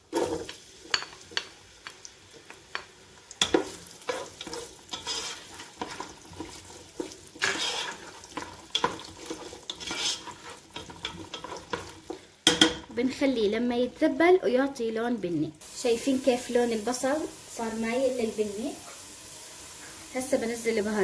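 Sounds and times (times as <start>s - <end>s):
onion sizzling in oil: 0.0s - 21.0s
wooden spoon scraping a pot: 3.4s - 12.3s.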